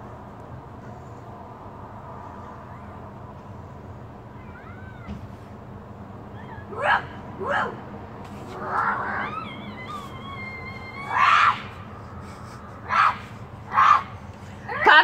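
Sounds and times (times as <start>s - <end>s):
children yipping like puppies: 4.3s - 5.4s, 6.3s - 7.8s, 8.6s - 15.0s.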